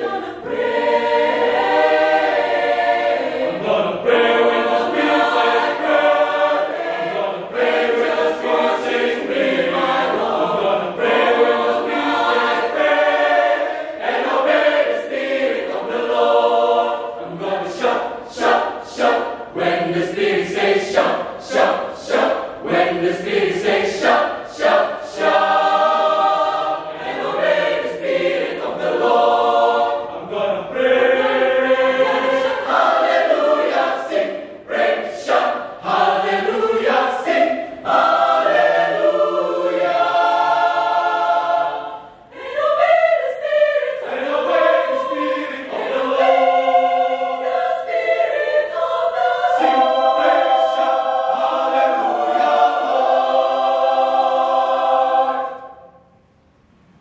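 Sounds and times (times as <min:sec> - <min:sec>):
mixed choir singing unaccompanied: 0:00.0 - 0:56.1.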